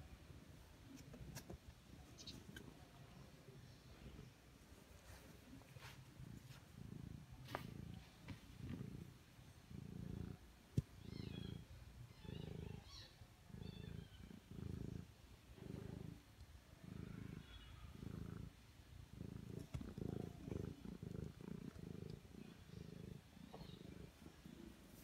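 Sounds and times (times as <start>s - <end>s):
cat purring: 0.3s - 25.0s.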